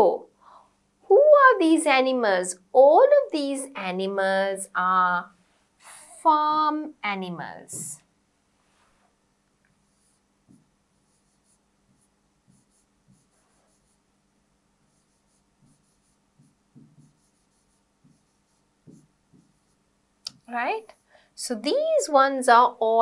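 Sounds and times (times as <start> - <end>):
pen tapping and writing on glass: 15.6 - 19.7.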